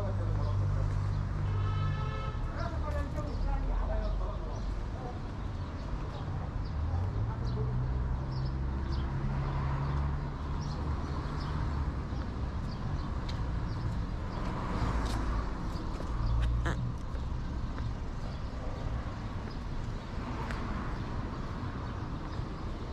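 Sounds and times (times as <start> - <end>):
car engines rumbling: 2.5 - 22.9
bird calls: 15.6 - 19.7.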